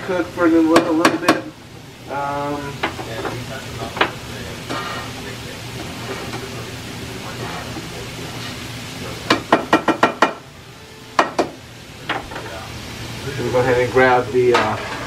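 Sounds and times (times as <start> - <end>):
meat sizzling in a skillet: 0.0 - 15.0
spatula tapping pan: 9.3 - 10.4, 11.2 - 12.2.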